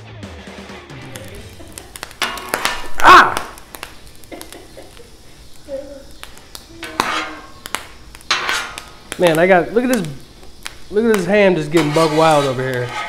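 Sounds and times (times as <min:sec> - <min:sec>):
food sizzling on a griddle: 0:00.9 - 0:13.0
popping fat clicks: 0:01.0 - 0:12.9
person exclaiming: 0:02.9 - 0:03.6, 0:05.6 - 0:06.1
metal spatulas scraping and tapping: 0:06.8 - 0:07.5, 0:08.3 - 0:08.9, 0:11.7 - 0:13.0.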